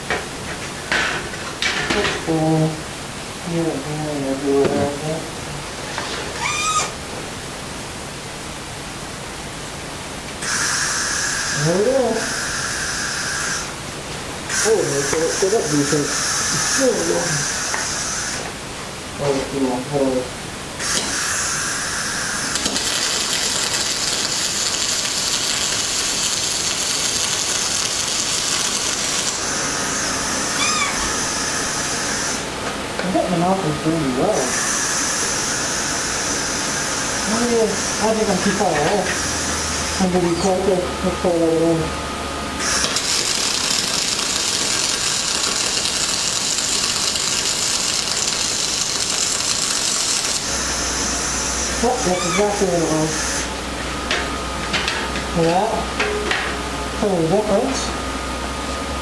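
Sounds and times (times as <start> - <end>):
welding arc crackling: 20.9 - 29.8, 42.6 - 52.1.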